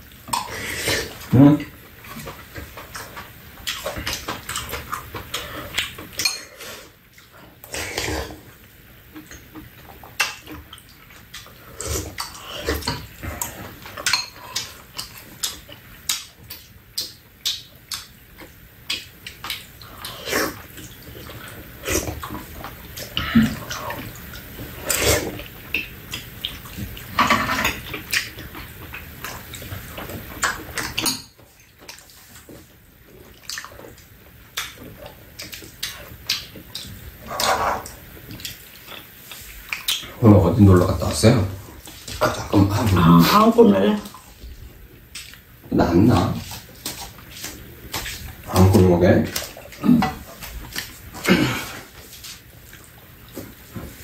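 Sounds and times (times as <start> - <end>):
people chewing: 0.0 - 54.0
people slurping soup: 0.4 - 1.7, 7.6 - 8.5, 24.7 - 25.5, 49.4 - 52.2.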